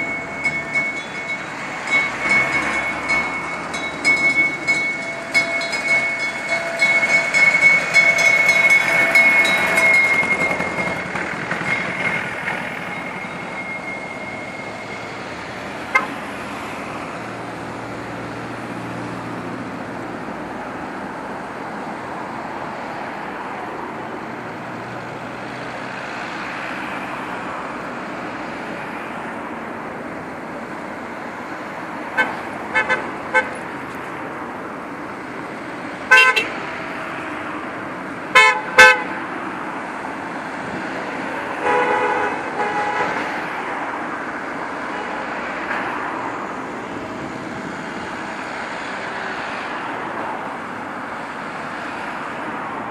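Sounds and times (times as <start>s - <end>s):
road noise of passing cars: 0.0s - 52.9s
car horns tooting: 15.8s - 16.3s, 32.2s - 33.6s, 36.1s - 36.7s, 38.3s - 39.2s, 41.5s - 43.4s.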